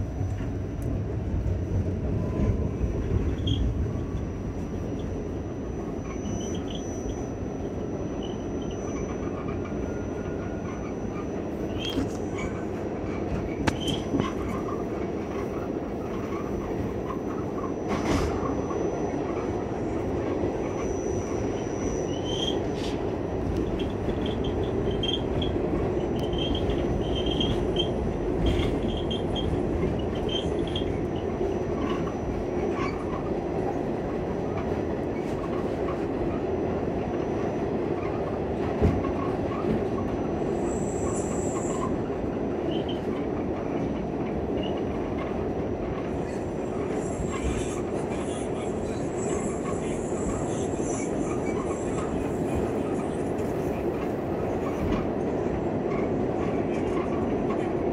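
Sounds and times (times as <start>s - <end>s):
subway wheels rumbling on rails: 0.0s - 57.9s
high wheel squeal: 5.5s - 14.8s, 20.6s - 23.0s, 23.6s - 25.6s, 26.2s - 33.1s, 39.5s - 42.0s, 46.2s - 53.7s.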